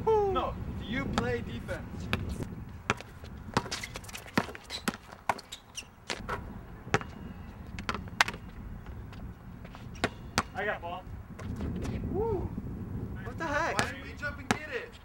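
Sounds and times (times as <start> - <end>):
basketball bouncing on court: 2.9 - 5.5, 6.9 - 7.2, 7.8 - 8.5, 10.0 - 10.6, 13.8 - 14.7
short high squeaks: 3.7 - 6.0.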